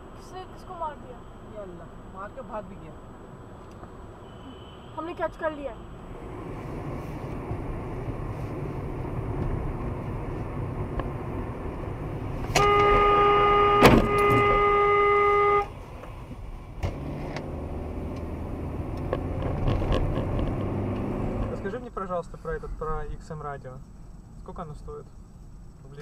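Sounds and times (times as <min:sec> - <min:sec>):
car driving: 0:00.0 - 0:26.0
car horn blast: 0:04.2 - 0:05.1, 0:12.5 - 0:15.7.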